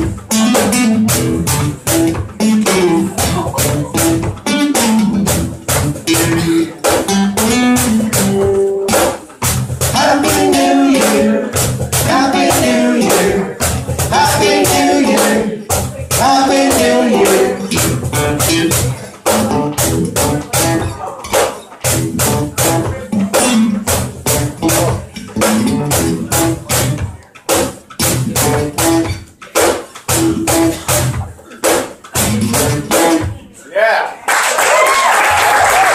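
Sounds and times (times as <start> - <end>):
acoustic guitar strumming: 0.0 - 33.5
man singing: 9.9 - 18.7.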